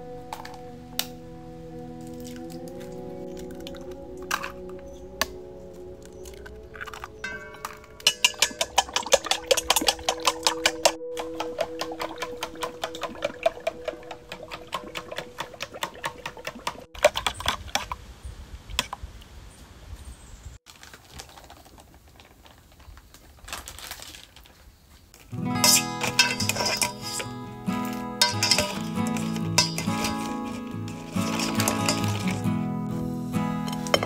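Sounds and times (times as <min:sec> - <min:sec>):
background music: 0:00.0 - 0:16.9, 0:25.2 - 0:34.0
metal spoon beating egg in bowl: 0:07.0 - 0:17.5, 0:25.6 - 0:32.4.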